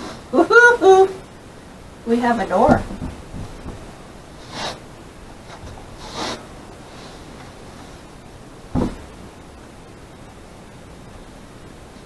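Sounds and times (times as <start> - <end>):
barn door thump: 2.6 - 4.0, 8.7 - 9.3.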